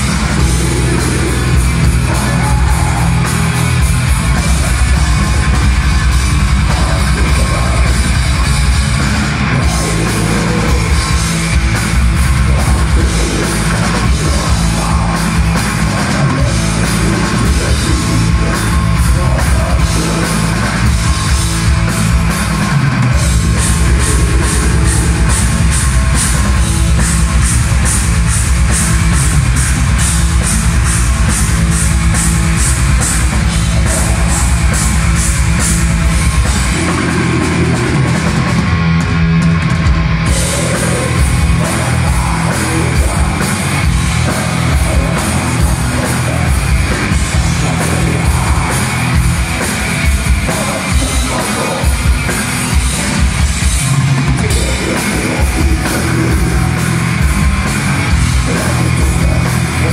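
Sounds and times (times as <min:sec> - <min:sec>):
metal band playing live: 0:00.0 - 0:59.9.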